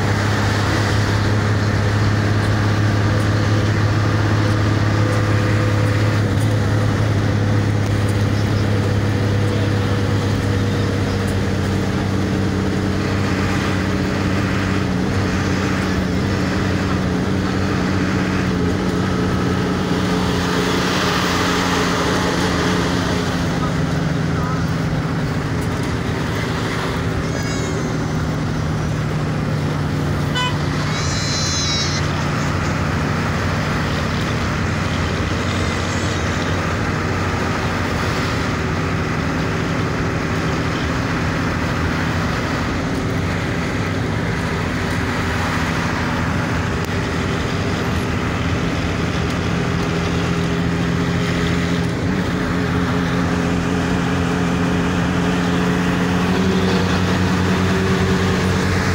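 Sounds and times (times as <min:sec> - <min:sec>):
bus engine running: 0:00.0 - 0:58.9
road noise: 0:00.0 - 0:58.9
high-pitched horn toots: 0:30.2 - 0:32.6.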